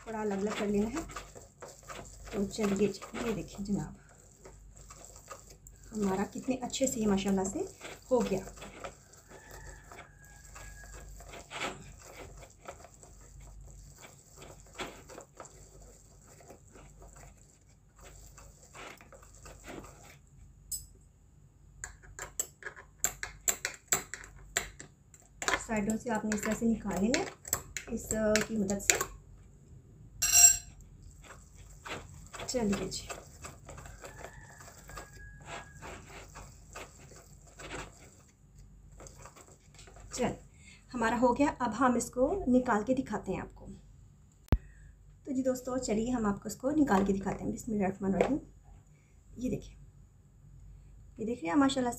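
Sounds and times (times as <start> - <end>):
metal fork scraping: 0.0 - 17.4, 30.2 - 38.3.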